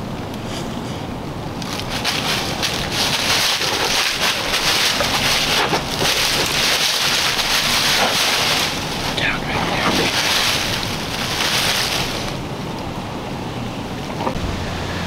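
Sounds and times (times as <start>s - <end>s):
wind gusting through woods: 0.0s - 15.0s
wind buffeting microphone: 0.7s - 14.4s.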